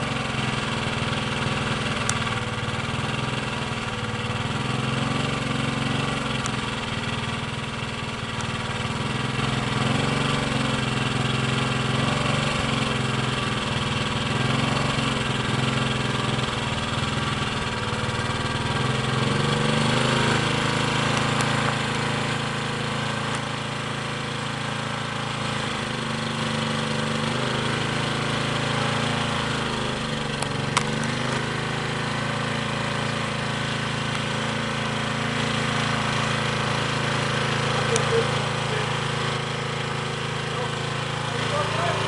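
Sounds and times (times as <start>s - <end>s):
small engine running: 0.0s - 42.0s.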